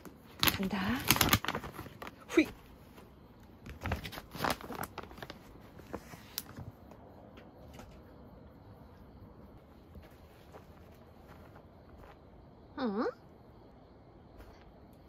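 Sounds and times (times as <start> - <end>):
dog rustling on duvet: 9.6 - 12.2.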